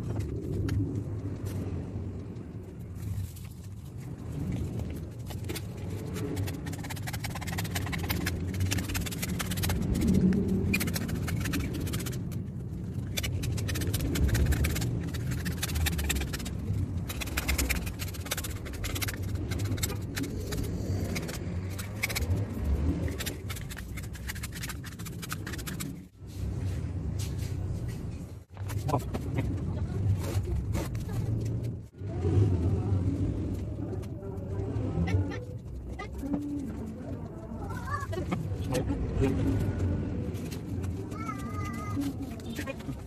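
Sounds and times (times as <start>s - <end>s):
low steady hum: 0.0s - 43.0s
scratchy scraping on plastic: 4.9s - 26.1s.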